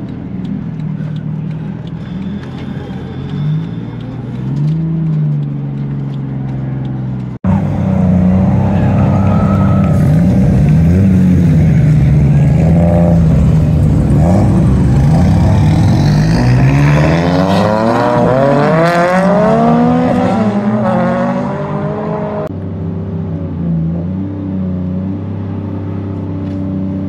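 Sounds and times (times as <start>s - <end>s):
drift car engines revving: 7.5s - 22.5s.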